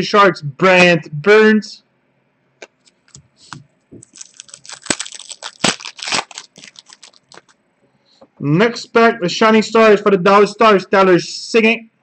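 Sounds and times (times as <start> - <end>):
foil wrapper crinkling and tearing: 4.0 - 7.6.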